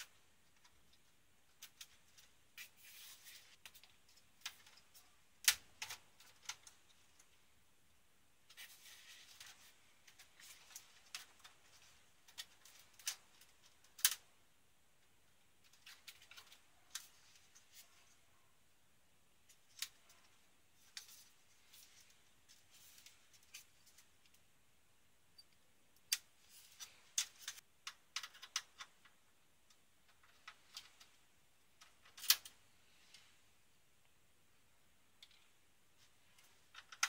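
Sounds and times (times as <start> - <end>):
soft rustling: 19.4 - 24.4.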